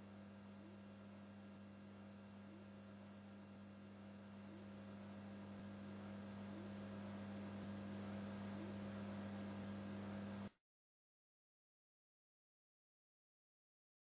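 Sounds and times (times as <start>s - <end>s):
low electrical hum: 0.0s - 10.6s.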